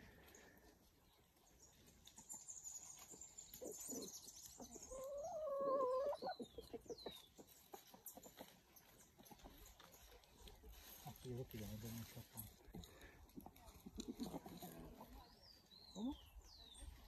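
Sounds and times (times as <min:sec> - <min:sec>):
birds chirping: 0:00.0 - 0:09.7, 0:14.2 - 0:17.0.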